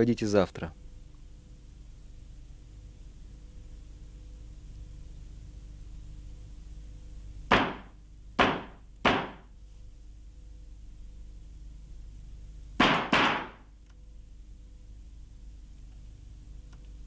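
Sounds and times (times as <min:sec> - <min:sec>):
faint steady hum: 0:00.0 - 0:17.0
knocking on a door: 0:07.5 - 0:09.5, 0:12.8 - 0:13.6.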